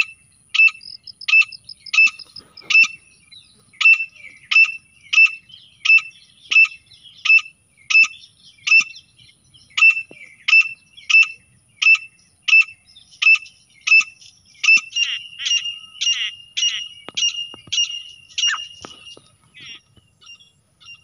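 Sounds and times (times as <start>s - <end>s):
francolin calling: 0.0s - 21.0s.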